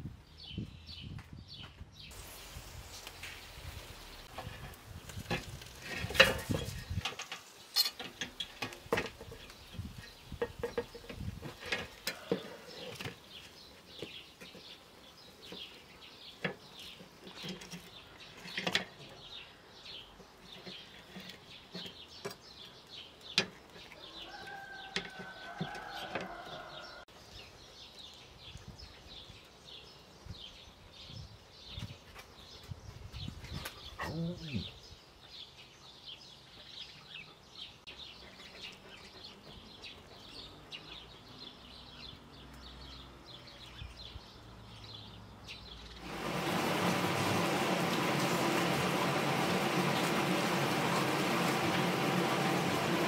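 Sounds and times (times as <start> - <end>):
birds chirping: 0.0 - 53.0.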